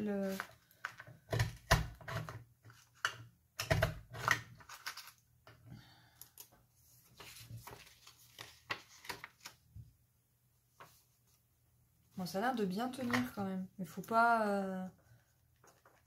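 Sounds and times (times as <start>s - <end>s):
paper rustling: 0.1s - 1.0s, 6.8s - 9.7s, 15.5s - 16.0s.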